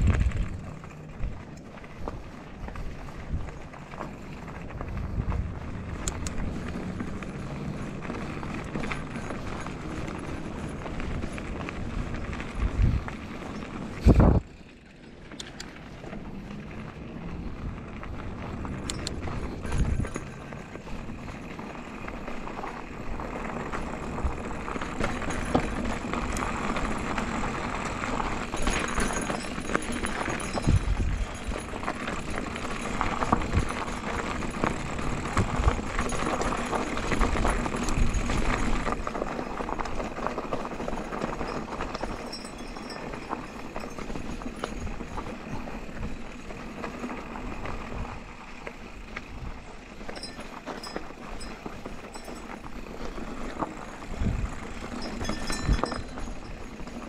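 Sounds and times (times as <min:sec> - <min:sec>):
bike rattling and knocking: 0:00.0 - 0:57.0
tyres crunching over gravel: 0:00.0 - 0:57.0.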